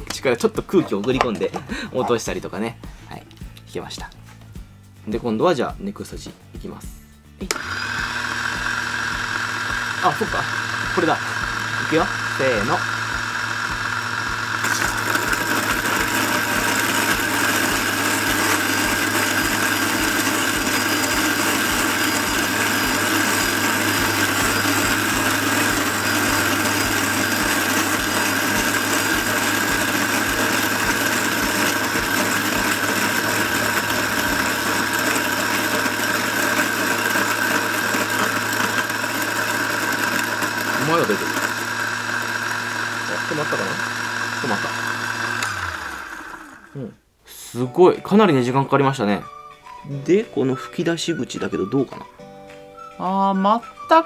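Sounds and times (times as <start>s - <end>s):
electric coffee grinder grinding: 7.4s - 46.9s.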